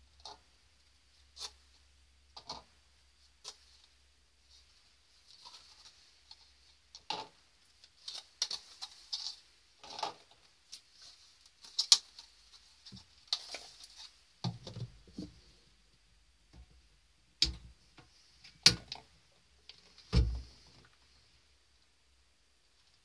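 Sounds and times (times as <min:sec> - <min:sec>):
plastic cups crinkling and clicking: 0:05.4 - 0:10.8.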